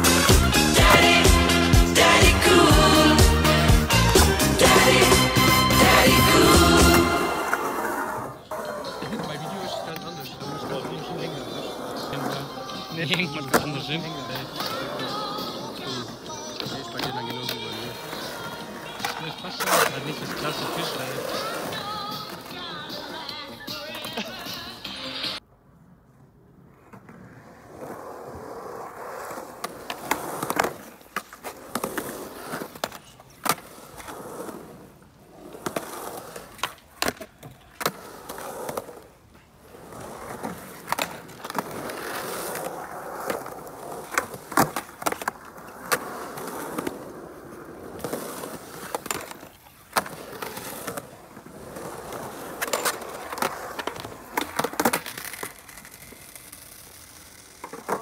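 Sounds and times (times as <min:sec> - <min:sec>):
skateboard wheels rolling on concrete: 0:00.0 - 0:58.0
skateboard clacks: 0:40.0 - 0:58.0.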